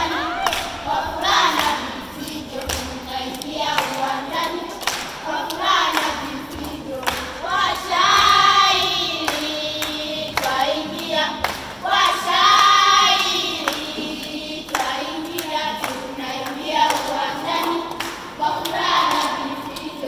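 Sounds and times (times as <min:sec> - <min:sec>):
children's choir singing: 0:00.0 - 0:20.0.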